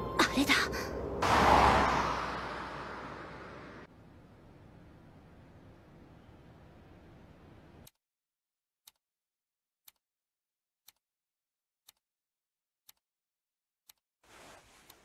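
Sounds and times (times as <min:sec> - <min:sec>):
clock ticking: 0:09.8 - 0:10.0, 0:10.8 - 0:11.0, 0:11.8 - 0:12.0, 0:12.8 - 0:13.0, 0:13.8 - 0:14.0.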